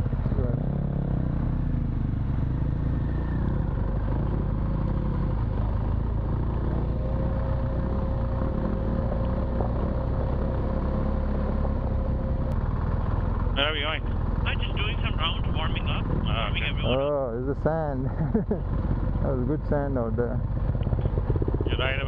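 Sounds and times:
motorcycle engine running: 0:00.0 - 0:22.0.

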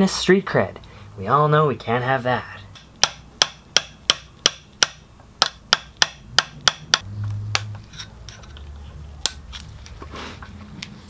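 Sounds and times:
hammer tapping metal punch: 0:02.7 - 0:07.7.

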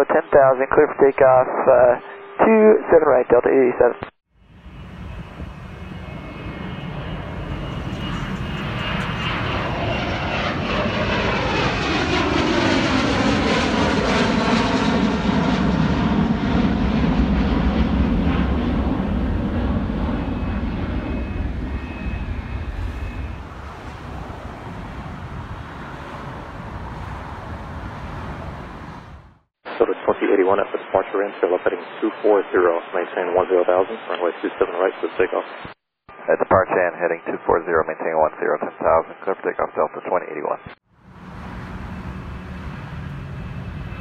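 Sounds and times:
jet engine whine: 0:04.4 - 0:29.9, 0:41.0 - 0:44.0
jet engine roar: 0:04.4 - 0:30.0, 0:41.0 - 0:44.0.

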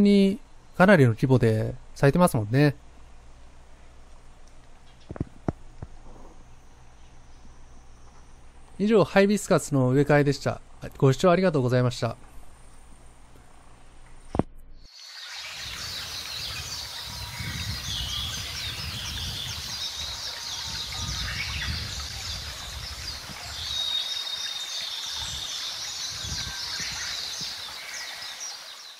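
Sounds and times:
birds chirping: 0:00.0 - 0:28.9
low rumbles: 0:00.4 - 0:14.9.

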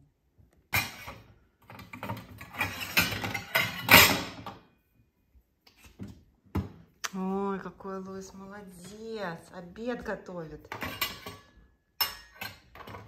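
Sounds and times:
metal toy pots clattering: 0:00.7 - 0:04.5, 0:10.6 - 0:13.0.

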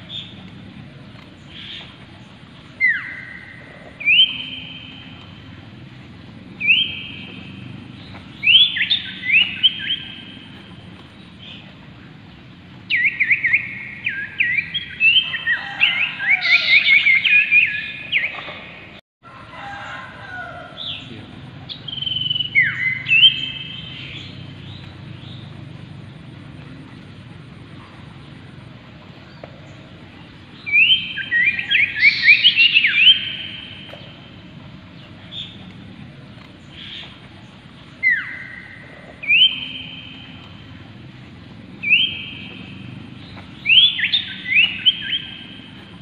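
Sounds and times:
bird whistled calls: 0:02.7 - 0:05.6, 0:06.6 - 0:10.8, 0:12.9 - 0:18.7, 0:21.7 - 0:25.4, 0:30.6 - 0:34.3, 0:36.7 - 0:41.0, 0:41.7 - 0:46.0
bird chattering whistles: 0:02.8 - 0:05.3, 0:06.6 - 0:07.5, 0:30.7 - 0:34.2, 0:38.0 - 0:40.6, 0:41.8 - 0:42.9, 0:43.6 - 0:45.7.

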